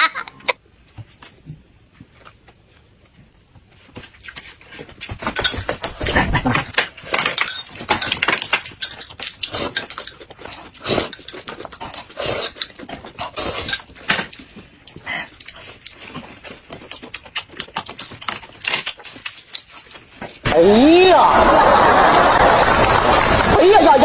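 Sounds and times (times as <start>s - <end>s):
wet chewing and lip-smacking: 9.0s - 20.0s.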